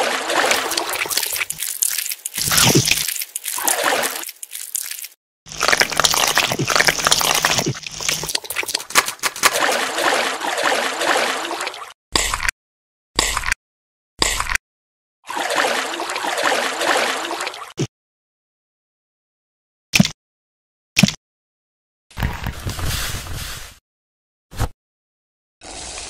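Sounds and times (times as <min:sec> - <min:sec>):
wet watery sound effects: 0:00.0 - 0:12.4, 0:15.3 - 0:17.9.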